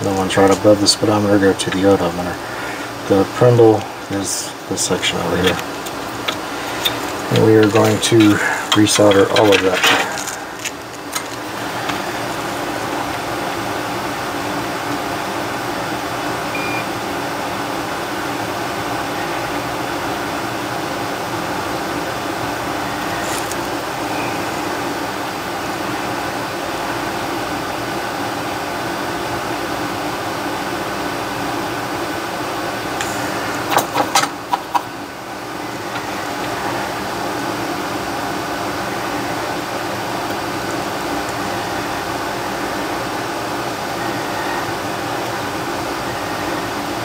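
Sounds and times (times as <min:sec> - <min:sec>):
machine whirring: 0:00.0 - 0:28.0.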